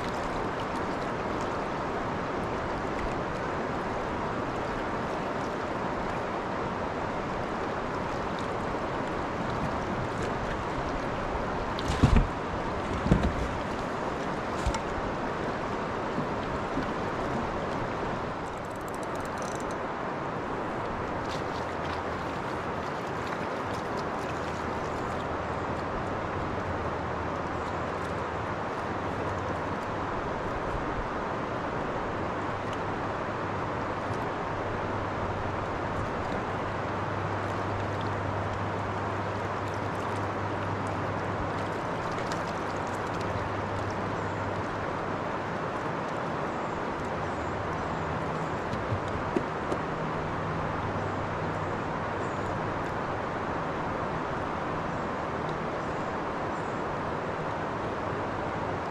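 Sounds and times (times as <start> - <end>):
boat motor humming: 0.0 - 58.9
river water rushing: 0.0 - 58.9
wind: 0.0 - 58.9
fine light clicks: 18.4 - 19.8
water washing: 35.3 - 46.3.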